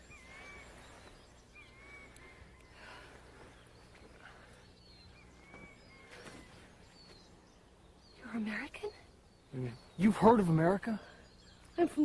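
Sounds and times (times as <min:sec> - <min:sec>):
bird whistled call: 0:00.0 - 0:03.0.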